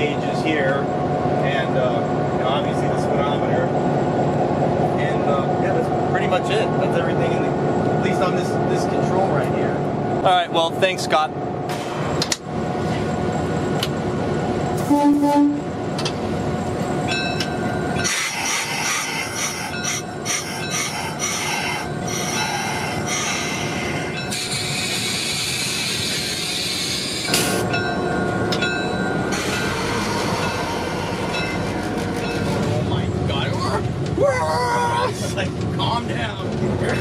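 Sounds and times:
diesel engine running: 0:00.0 - 0:37.0
locomotive horn blast: 0:14.8 - 0:15.7
clanks and clicks: 0:31.4 - 0:33.0.

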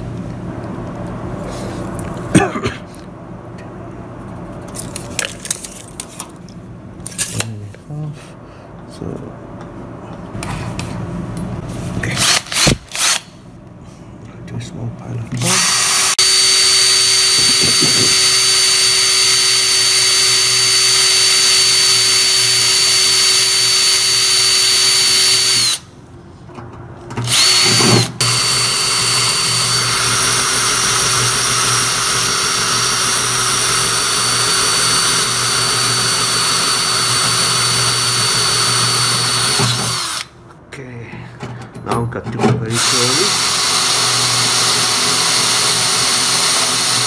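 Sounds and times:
power drill boring through metal: 0:12.2 - 0:13.3, 0:15.4 - 0:25.8, 0:27.2 - 0:40.3, 0:42.7 - 0:47.0.

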